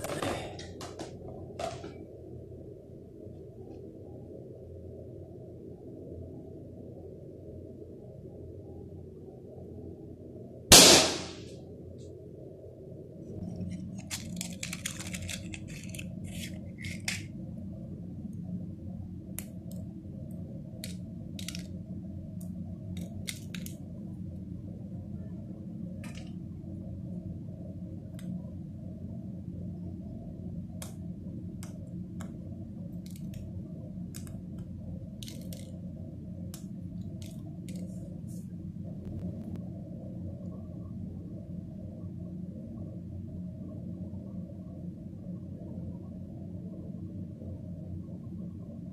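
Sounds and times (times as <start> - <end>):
low hum: 0.0 - 48.9
handling clicks and rustles: 13.4 - 17.3.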